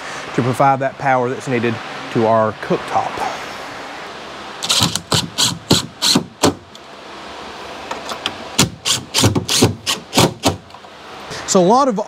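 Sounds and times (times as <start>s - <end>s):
fan air hiss: 0.0s - 12.0s.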